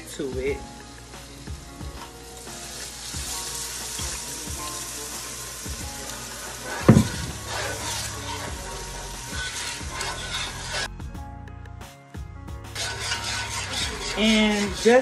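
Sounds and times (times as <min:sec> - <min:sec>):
liquid sizzling in a hot pan: 0:00.0 - 0:10.9, 0:12.7 - 0:15.0
sharp knock: 0:06.9 - 0:07.4.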